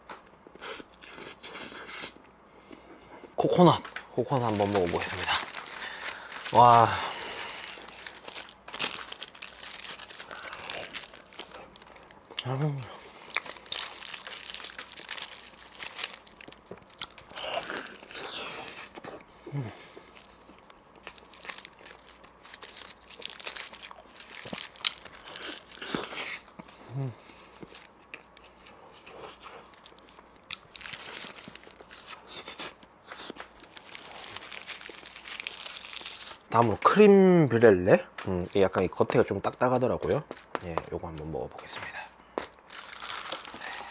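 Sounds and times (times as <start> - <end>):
paper wrapper crinkling: 3.7 - 19.0, 21.0 - 26.6, 27.6 - 37.0, 42.4 - 43.9
person chewing food: 4.8 - 36.4.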